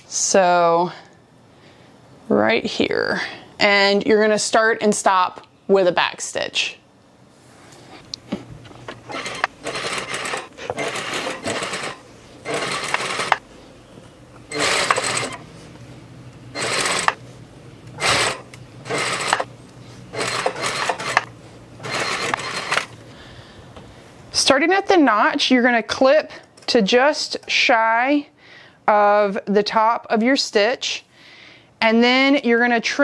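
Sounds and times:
sewing machine stitching: 9.0 - 13.4, 14.5 - 15.5, 16.5 - 17.2, 18.0 - 19.5, 20.1 - 22.9.

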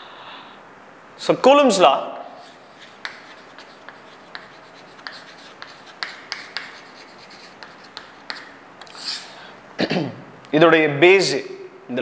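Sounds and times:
chalk tapping and scratching on board: 2.4 - 9.3.

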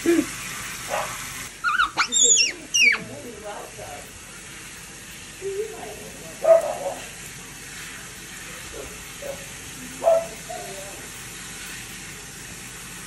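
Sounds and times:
faucet spray into sink: 0.0 - 13.0
monkey vocal sounds: 1.6 - 3.1.

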